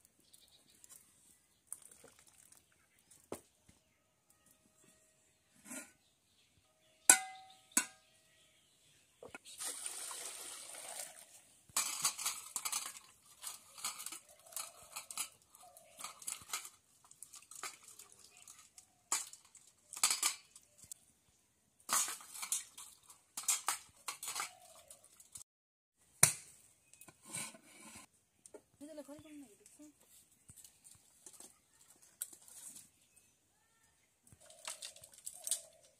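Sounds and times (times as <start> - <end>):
liquid pouring: 1.7 - 2.8, 9.6 - 11.3
steel pots and utensils clattering: 7.1 - 8.0, 11.8 - 20.7, 21.9 - 25.4.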